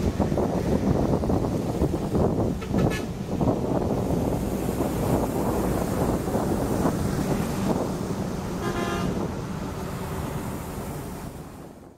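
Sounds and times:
truck engine running: 0.0s - 11.7s
vehicle horn toot: 2.6s - 3.1s, 8.6s - 9.2s
tyres hissing through water: 9.4s - 11.6s.

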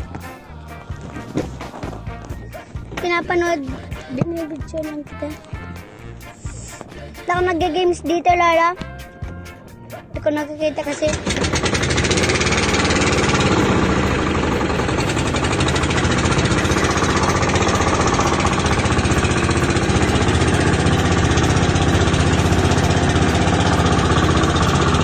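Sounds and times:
boat engine running: 0.0s - 25.0s.

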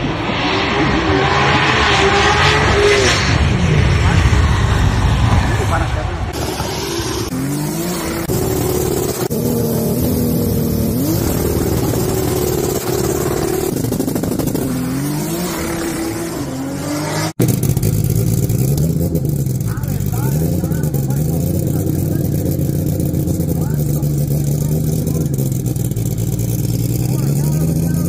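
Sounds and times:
turbocharged engine revving hard: 0.0s - 28.0s.

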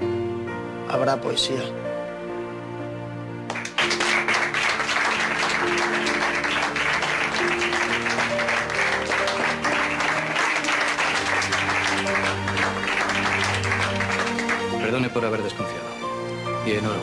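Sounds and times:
soft background music: 0.0s - 17.0s
people applauding: 3.5s - 15.5s.

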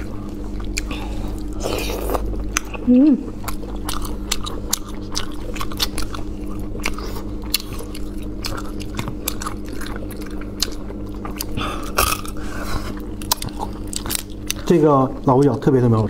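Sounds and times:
chewing and sucking shellfish: 0.0s - 16.0s
low hum: 0.0s - 16.0s.

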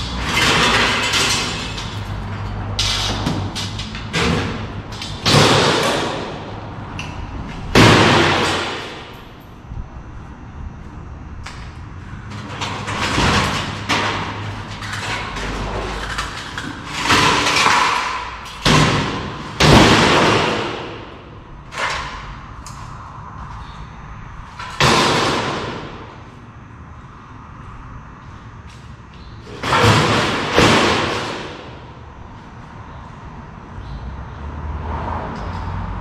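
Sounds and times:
bangs and thuds: 2.8s - 6.5s, 7.7s - 9.2s, 16.9s - 22.3s, 24.6s - 26.2s, 29.5s - 31.8s.

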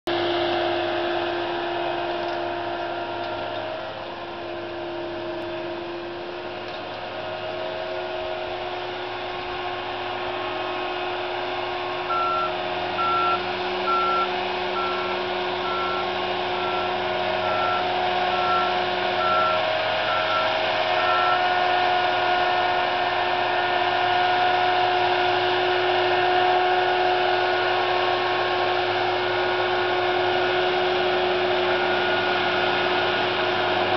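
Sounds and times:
engine drone with whine: 0.1s - 33.9s
backup alarm beeping: 12.1s - 21.4s.

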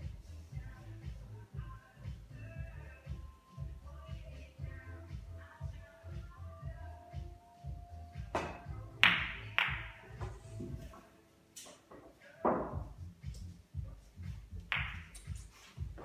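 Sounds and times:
pool balls clacking: 8.3s - 11.0s, 11.6s - 12.9s, 14.6s - 15.4s
cue striking ball: 8.4s - 10.4s, 14.7s - 15.2s.

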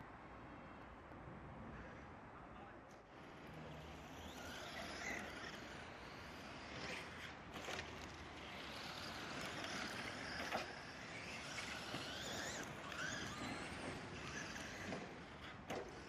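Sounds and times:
rc truck electric motors whining: 3.1s - 16.0s.

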